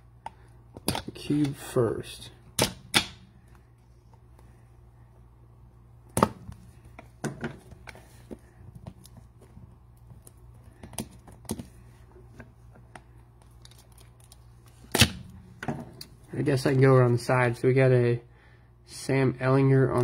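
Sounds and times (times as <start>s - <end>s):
plastic crinkles and clicks: 13.4s - 14.9s.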